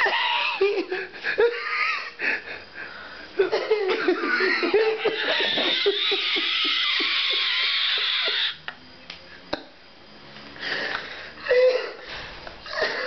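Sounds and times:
hearty breathy laughter: 0:00.0 - 0:07.5, 0:10.6 - 0:13.0.

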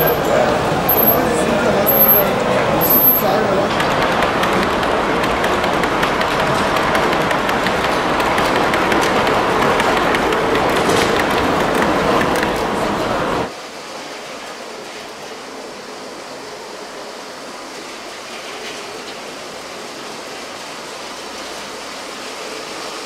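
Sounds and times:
model train rolling on rails: 0:00.0 - 0:23.0
steady hiss: 0:13.5 - 0:23.0.

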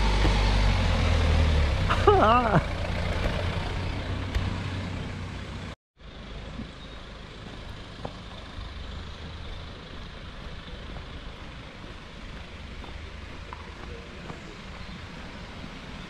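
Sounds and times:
motor vehicle rumbling: 0:00.0 - 0:16.0
steady outdoor hiss: 0:06.0 - 0:16.0.

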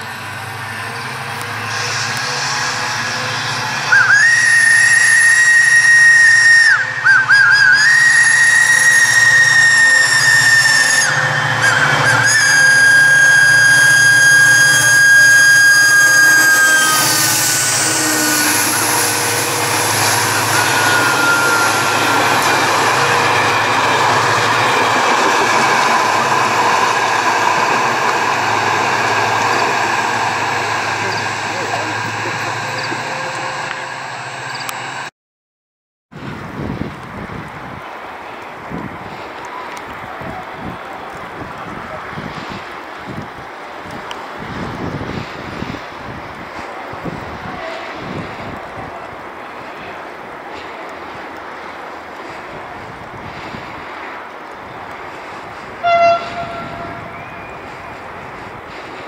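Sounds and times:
train rumble and wheel noise: 0:00.0 - 0:35.1, 0:36.2 - 0:59.0
locomotive air horn blasts: 0:01.6 - 0:24.6, 0:55.8 - 0:57.8.

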